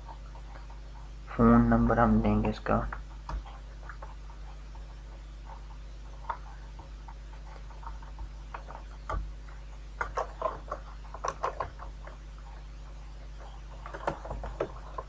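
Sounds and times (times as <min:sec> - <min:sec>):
steady low hum: 0:00.0 - 0:15.0
keyboard typing: 0:02.9 - 0:12.2, 0:13.3 - 0:15.0.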